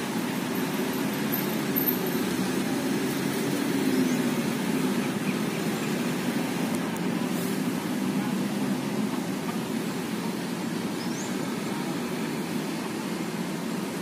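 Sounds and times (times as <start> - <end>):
city road traffic rumble: 0.0 - 14.0.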